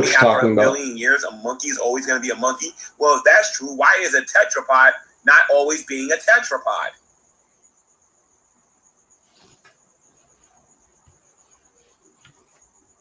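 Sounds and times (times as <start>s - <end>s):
faint high-pitched whine: 0.0s - 13.0s
soft clicks and rustles: 9.2s - 12.8s.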